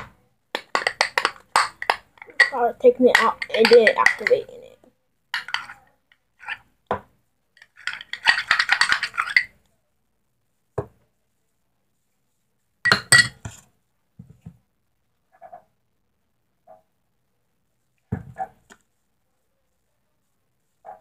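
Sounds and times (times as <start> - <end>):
metal utensil scraping a bowl: 0.7 - 4.5, 5.4 - 5.8, 6.4 - 6.7, 7.6 - 9.5.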